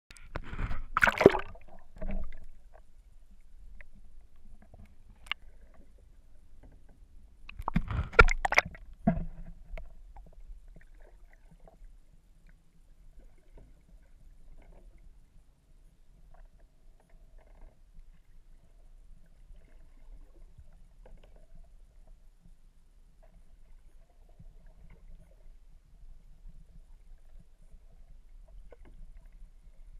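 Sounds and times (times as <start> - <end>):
water splashing and sloshing: 0.2 - 15.2, 23.2 - 29.9.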